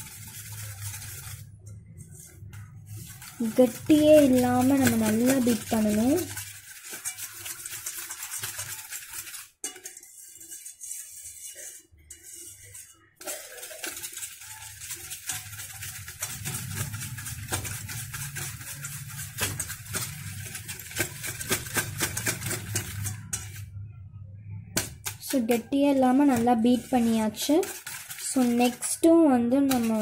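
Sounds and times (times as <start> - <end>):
spoon clinking and scraping in bowl: 0.0 - 23.7, 24.8 - 30.0.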